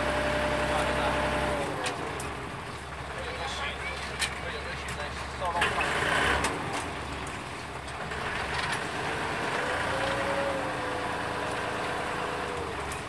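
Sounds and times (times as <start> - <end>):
boat engine humming: 0.0 - 8.0.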